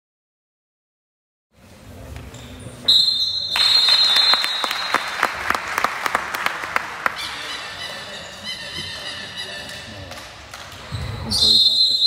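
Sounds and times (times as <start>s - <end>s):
whistle blowing high note: 2.9s - 5.1s
hand clapping: 3.6s - 7.6s.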